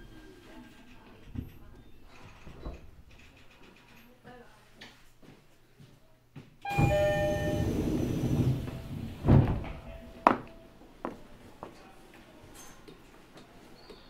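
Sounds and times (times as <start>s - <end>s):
train door chime: 6.6s - 10.7s
train doors sliding: 6.7s - 10.5s
loud thud: 8.9s - 9.8s.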